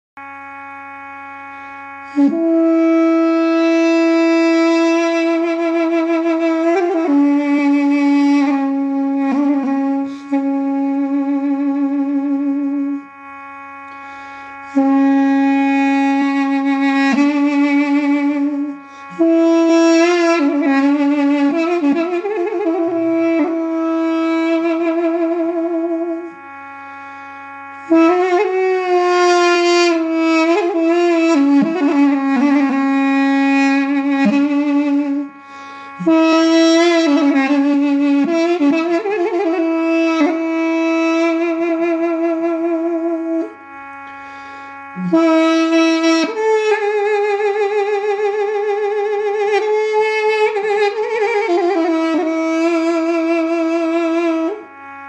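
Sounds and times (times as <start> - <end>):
steady drone: 0.2 - 55.0
woodwind playing slow melody: 0.2 - 55.0.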